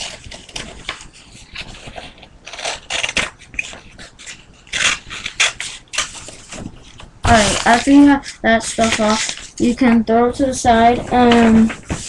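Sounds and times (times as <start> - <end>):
paper rustling: 0.0 - 12.0
scissors snipping paper: 2.5 - 6.2, 7.3 - 9.7.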